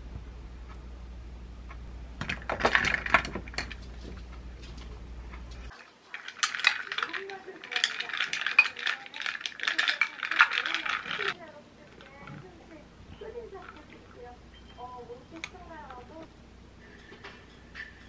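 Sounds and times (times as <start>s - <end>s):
steady low hum: 0.0s - 18.0s
ice cubes clinking in glass: 2.3s - 3.8s, 5.7s - 11.4s.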